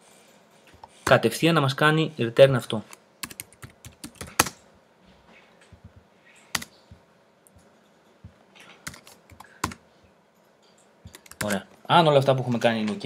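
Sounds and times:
typing on computer keyboard: 0:03.2 - 0:04.6, 0:06.5 - 0:06.8, 0:08.6 - 0:09.8, 0:11.1 - 0:11.7.

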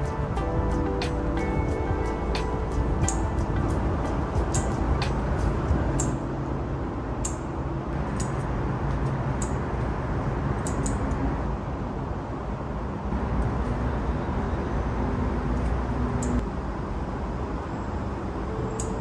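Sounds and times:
scissor snips: 0:04.5 - 0:05.2, 0:06.0 - 0:06.2, 0:08.0 - 0:09.6.

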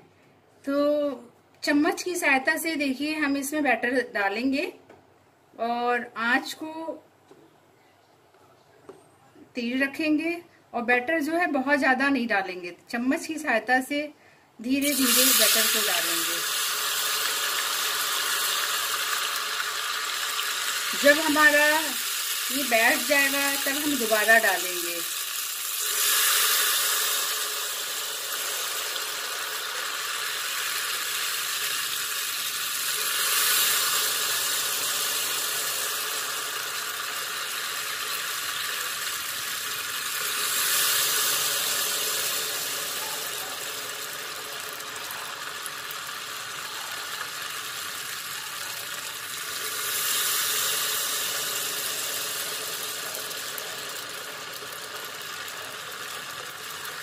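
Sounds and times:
hot oil sizzling and bubbling: 0:14.6 - 0:57.0.

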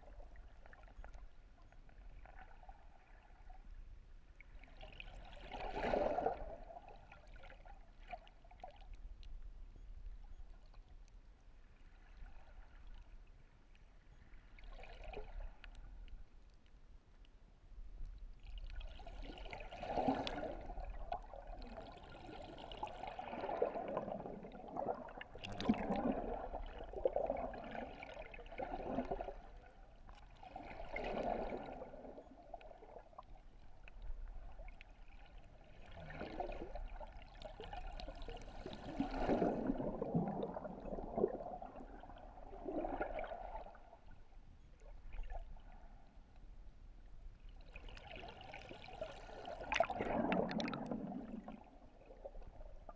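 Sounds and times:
underwater rushing bubbling surf: 0:23.0 - 0:29.3, 0:30.6 - 0:32.2, 0:38.4 - 0:43.5, 0:49.5 - 0:51.8.

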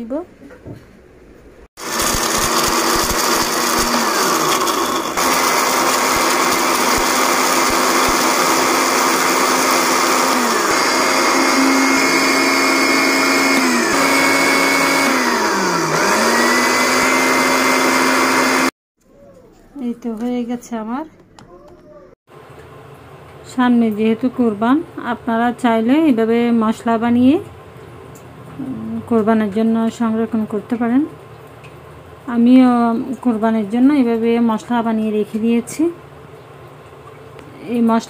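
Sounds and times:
mixer grinder grinding spices: 0:01.8 - 0:18.7.

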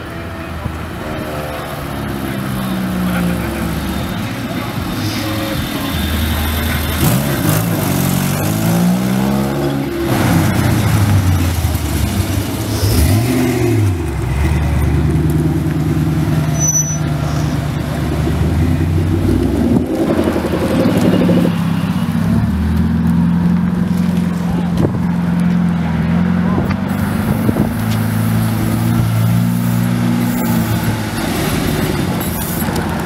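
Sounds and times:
cars driving past: 0:00.0 - 0:33.0
engine revving up: 0:06.4 - 0:15.5, 0:17.2 - 0:23.8
low engine drone: 0:10.7 - 0:29.6.

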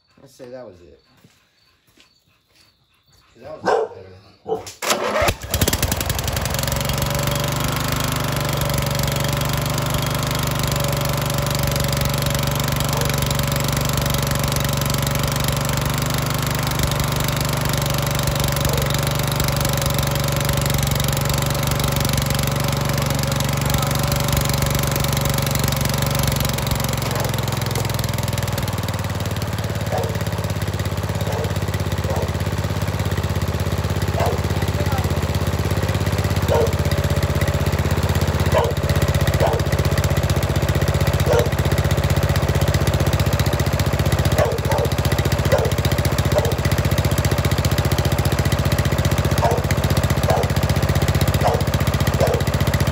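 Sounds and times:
small gasoline engine running: 0:04.8 - 0:52.9.

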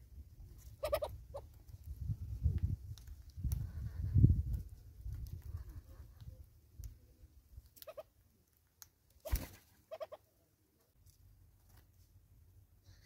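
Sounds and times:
bird clucking: 0:00.8 - 0:01.5, 0:07.8 - 0:08.1, 0:09.3 - 0:10.3.

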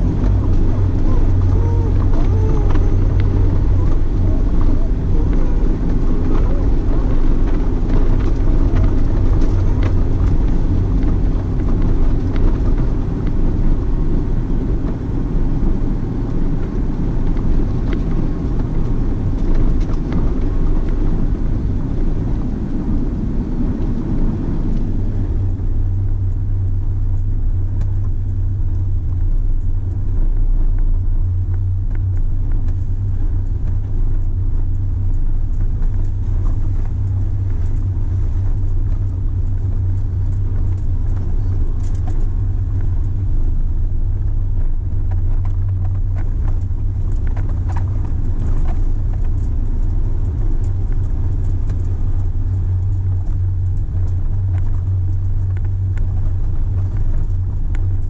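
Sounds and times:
engine and tyre rumble: 0:00.0 - 0:58.0.

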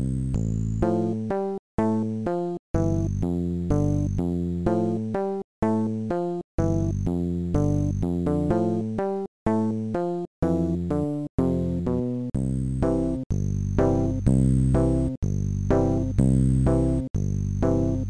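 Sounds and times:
synthesized tune over bass line: 0:02.8 - 0:05.8, 0:06.6 - 0:08.8, 0:10.4 - 0:18.0.

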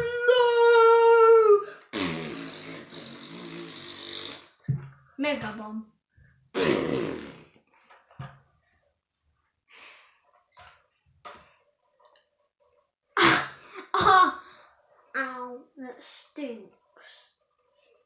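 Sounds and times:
boy making disgusted noises: 0:00.0 - 0:04.6
faint small sounds: 0:07.6 - 0:13.2.

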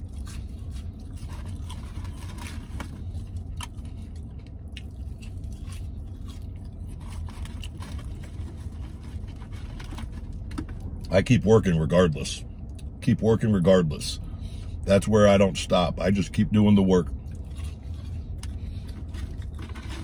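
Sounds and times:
chewing and biting fries: 0:00.0 - 0:11.2, 0:16.8 - 0:20.0
low vehicle cabin hum: 0:00.0 - 0:20.0.

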